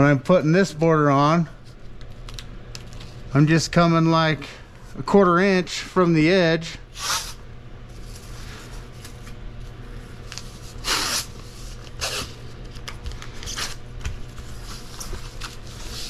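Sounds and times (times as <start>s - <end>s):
steady low hum: 0.0s - 16.0s
masking tape pulled off roll: 10.3s - 12.4s.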